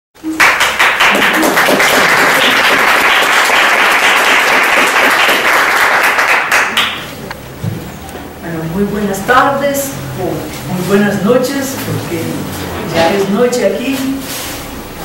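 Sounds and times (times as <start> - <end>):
audience applauding: 0.2 - 7.2.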